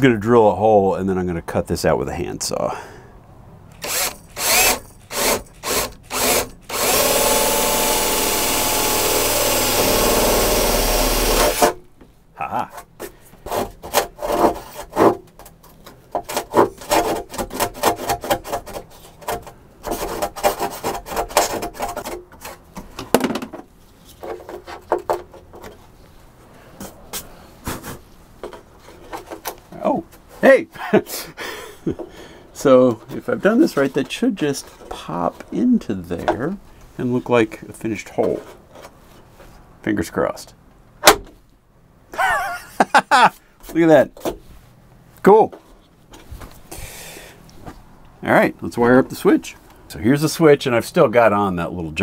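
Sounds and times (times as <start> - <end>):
cordless drill boring: 3.8 - 11.8.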